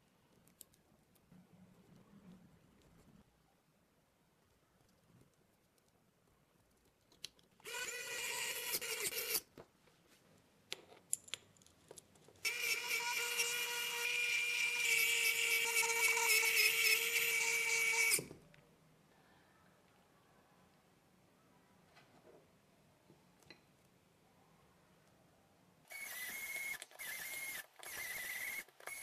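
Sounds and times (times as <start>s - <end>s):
electric screwdriver whining: 7.7s - 9.4s, 12.5s - 18.3s, 25.9s - 29.0s.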